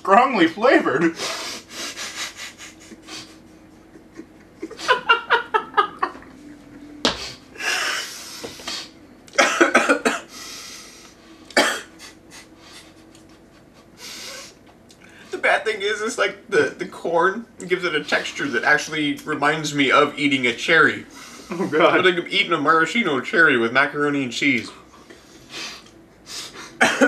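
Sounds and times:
men laughing: 0.8 - 8.3, 11.9 - 14.6, 21.1 - 22.2
men coughing: 9.4 - 10.3, 11.5 - 12.9, 26.6 - 27.0.

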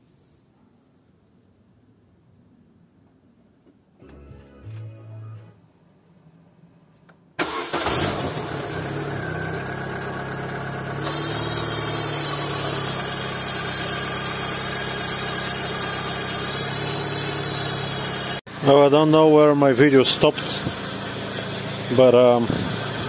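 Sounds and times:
car engine starting and idling: 7.4 - 23.0.

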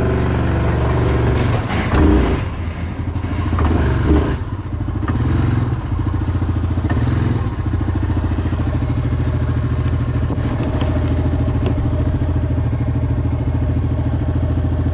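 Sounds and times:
atv engine idling: 4.4 - 14.9.

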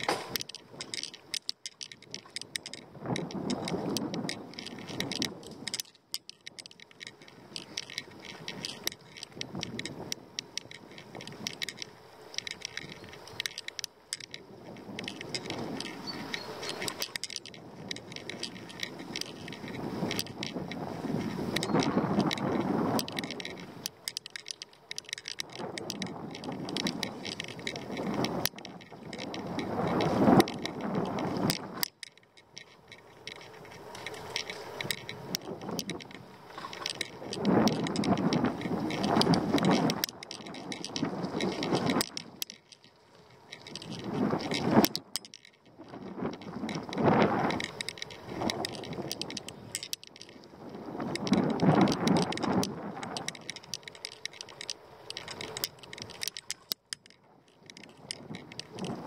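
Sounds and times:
bicycle parts rattling: 0.0 - 59.0
wind rushing over microphone: 2.0 - 5.8, 7.4 - 24.2, 24.9 - 31.9, 33.2 - 42.5, 43.4 - 56.8, 57.6 - 59.0
tyres rumbling on rough road: 6.6 - 42.8.

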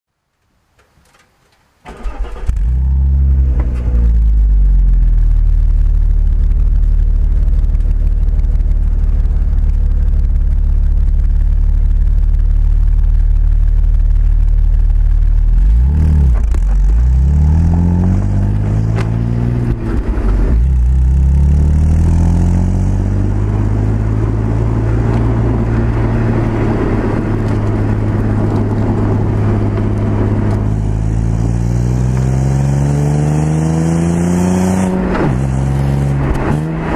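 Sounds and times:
road and wind noise: 0.2 - 36.9
car exhaust idling and revving: 2.5 - 36.9.

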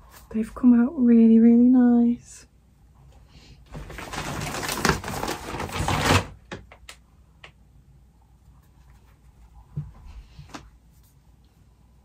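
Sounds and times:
paper rustling: 3.7 - 6.6.

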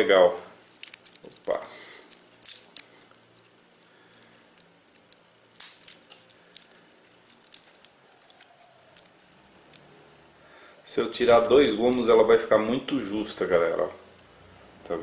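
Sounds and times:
metal bracelet links clicking: 0.7 - 3.5, 4.5 - 10.3.

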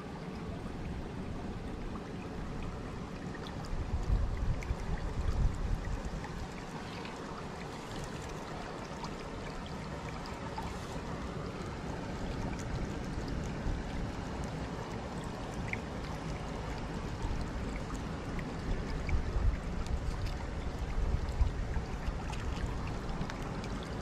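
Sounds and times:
stream water trickling: 0.0 - 24.0.

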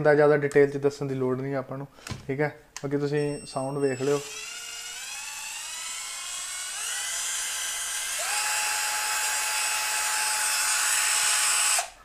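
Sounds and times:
cordless drill whining: 3.6 - 12.0.

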